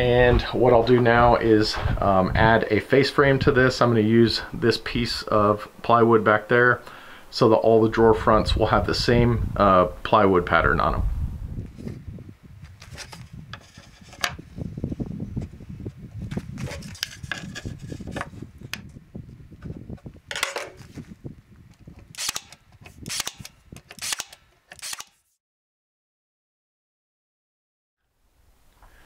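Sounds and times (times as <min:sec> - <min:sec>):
wooden knocks and rubbing: 0:12.9 - 0:14.4, 0:16.3 - 0:18.9
brad nailer firing: 0:22.2 - 0:25.3.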